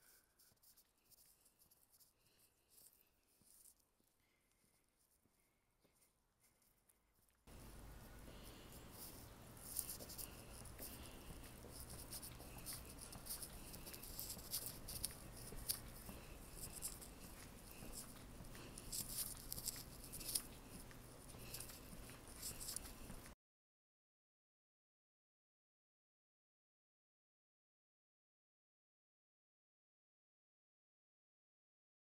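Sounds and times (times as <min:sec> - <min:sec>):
faint low hum: 0:00.0 - 0:23.4
light ticks and scuffs: 0:00.0 - 0:23.4.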